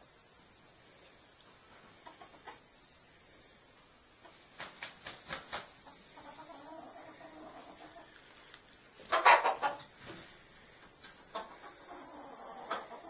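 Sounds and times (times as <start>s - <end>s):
chickens clucking: 1.8s - 3.0s, 4.0s - 13.0s.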